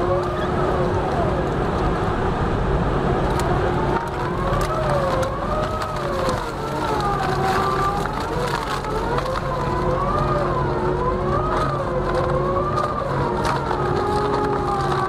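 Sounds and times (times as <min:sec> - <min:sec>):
low steady hum: 0:00.0 - 0:15.0
wood shredder whining: 0:00.0 - 0:15.0
wood cracking and snapping: 0:03.2 - 0:15.0.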